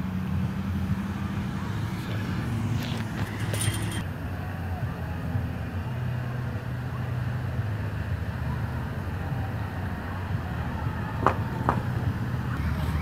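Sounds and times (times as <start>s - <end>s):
car driving rumble: 0.0s - 13.0s.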